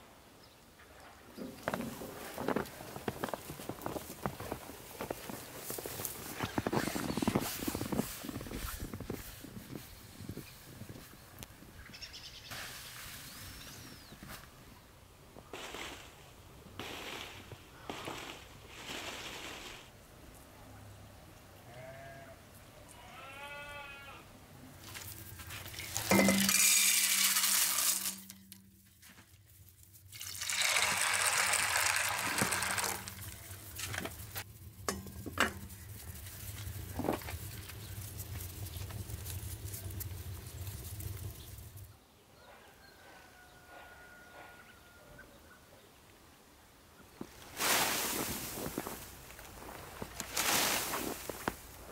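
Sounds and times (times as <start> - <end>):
farm animal bleating: 21.6 - 24.3.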